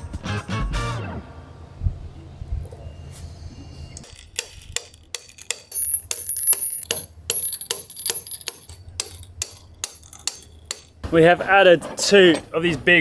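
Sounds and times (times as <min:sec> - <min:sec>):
hammer striking metal bolts: 0:04.0 - 0:11.2.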